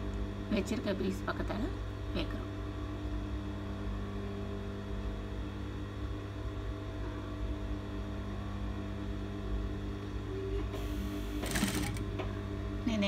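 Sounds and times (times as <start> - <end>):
electric sewing machine running: 10.8 - 12.1.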